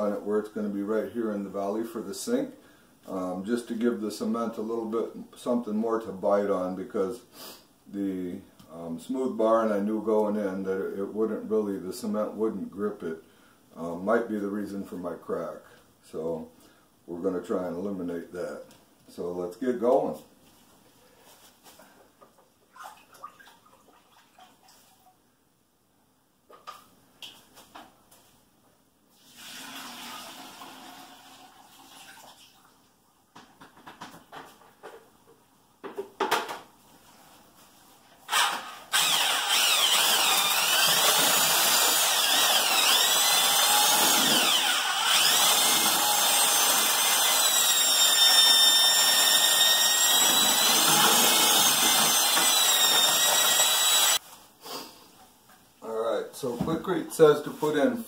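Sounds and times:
drill mixer stirring concrete: 38.3 - 54.2.

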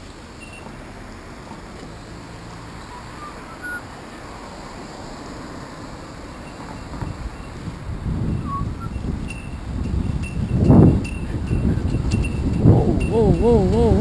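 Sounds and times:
road noise: 0.0 - 14.0
wind noise: 6.8 - 14.0.

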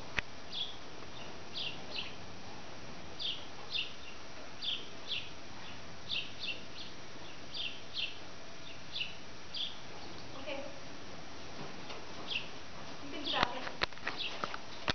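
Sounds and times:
steady low hiss: 0.0 - 14.9
small bird chirping: 0.5 - 2.2, 3.2 - 10.6, 12.3 - 12.5, 13.2 - 14.9.

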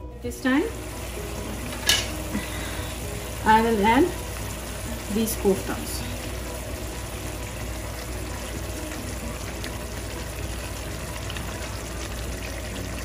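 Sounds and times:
curry bubbling in a pan: 4.0 - 13.0.

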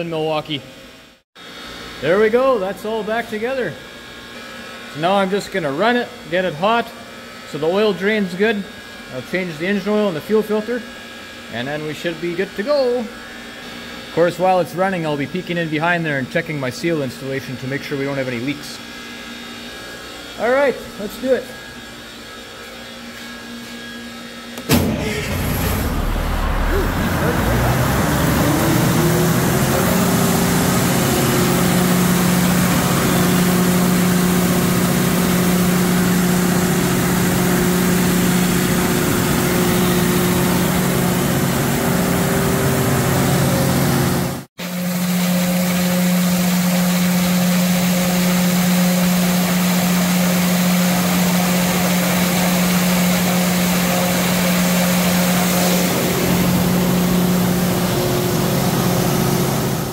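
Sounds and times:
diesel generator running: 24.5 - 59.9.

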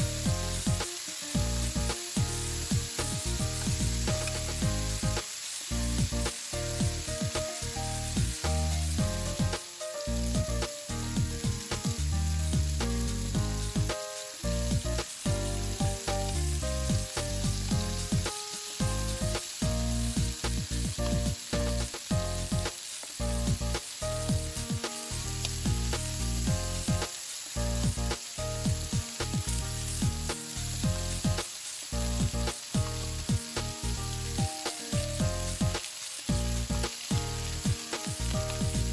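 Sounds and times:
background music: 0.0 - 38.9
meat sizzling in a skillet: 0.0 - 38.9
tongs turning meat: 0.5 - 9.2.

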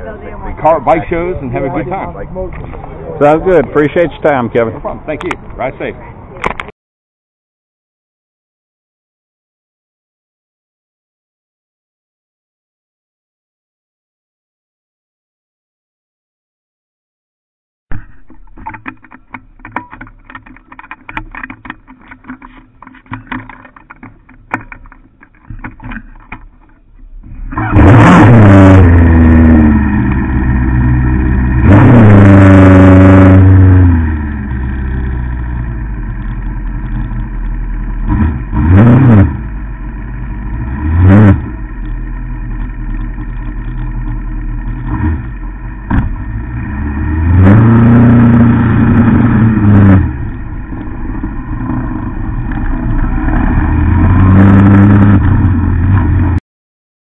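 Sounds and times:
motorcycle engine starting and revving: 17.9 - 56.4.

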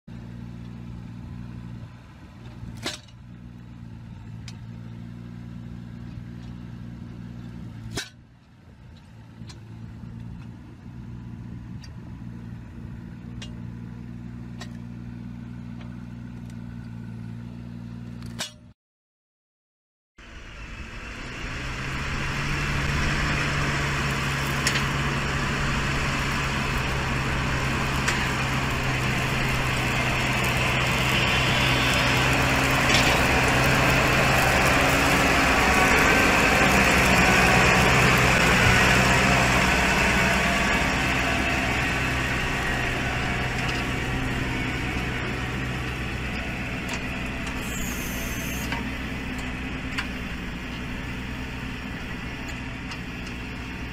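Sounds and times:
motor hum: 20.3 - 53.9
saw cutting boards: 47.5 - 48.9.

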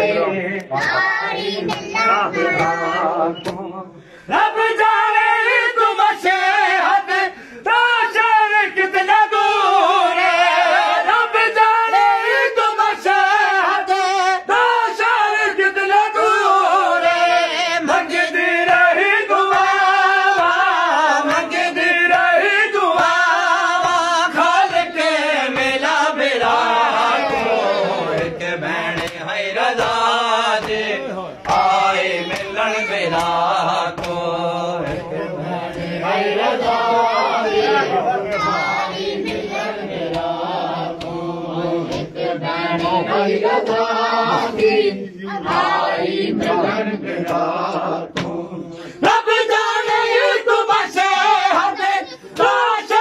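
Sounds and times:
group chanting a lament: 0.0 - 53.0
hands slapping chests: 1.6 - 2.8, 3.4 - 3.8, 25.5 - 36.0, 38.3 - 43.1, 47.2 - 48.5, 52.3 - 52.7.

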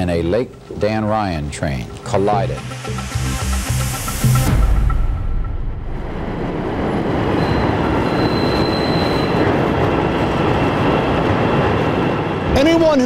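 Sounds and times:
train wheels rumbling on rail: 6.0 - 13.0
high wheel squeal: 7.4 - 9.7.

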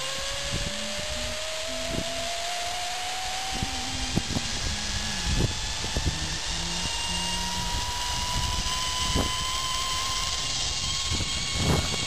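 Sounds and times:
wind noise: 0.0 - 12.0
zip line pulleys whining on cable: 0.0 - 12.0.

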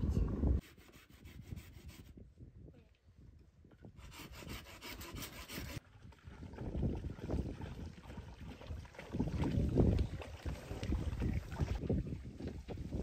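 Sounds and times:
rough scraping and rubbing: 0.6 - 2.2, 4.0 - 5.8.

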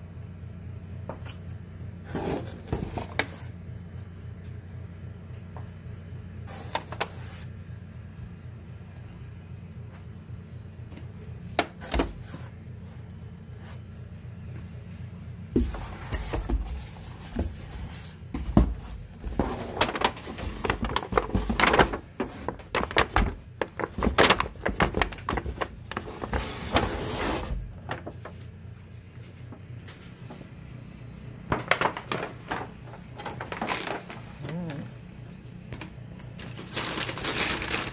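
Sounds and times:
steady low hum: 0.0 - 37.9
foil and cardboard crinkling: 6.5 - 7.5, 15.6 - 28.6, 31.5 - 34.8, 35.8 - 37.9.

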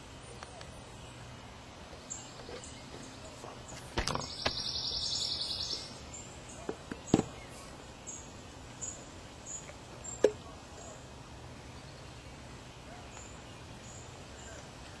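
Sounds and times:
camp cooking gear knocking: 6.7 - 7.4.

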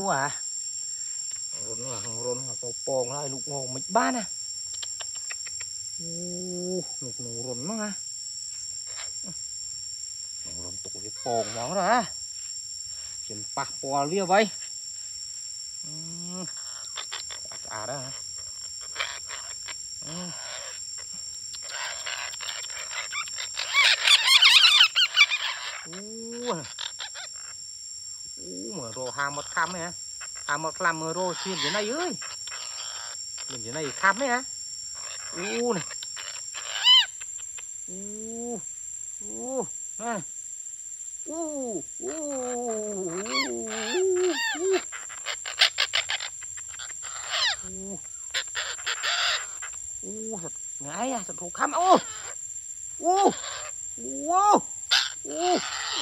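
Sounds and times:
man making warbling calls: 15.9 - 18.2, 20.0 - 20.6, 23.6 - 27.2, 28.4 - 32.2, 35.2 - 35.9, 39.2 - 40.3, 41.3 - 45.0, 47.2 - 49.4, 50.0 - 52.3, 53.0 - 56.0
parakeets screeching: 16.5 - 27.6, 29.0 - 34.4, 35.0 - 37.4, 42.1 - 49.8, 50.9 - 52.4, 53.2 - 53.8, 54.9 - 56.0.

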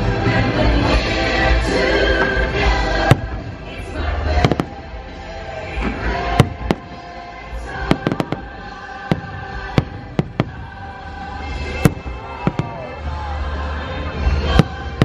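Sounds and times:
music playing: 0.0 - 15.0
fireworks bangs and cracks: 0.2 - 13.2, 14.2 - 15.0.

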